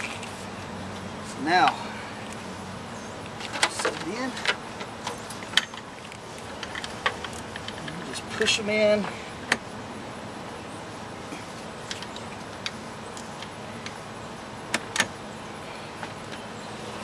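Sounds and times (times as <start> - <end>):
steady background hiss: 0.0 - 17.0
metallic clicks of hose fittings: 3.2 - 8.2.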